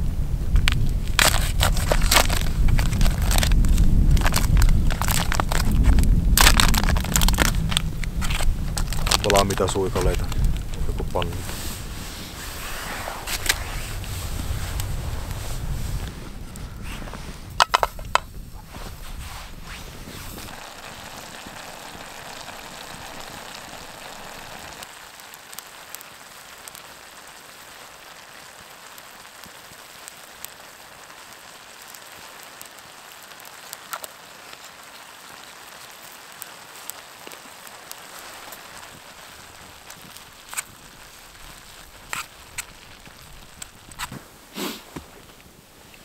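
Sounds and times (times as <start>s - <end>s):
meat sizzling in a pan: 19.5s - 44.8s.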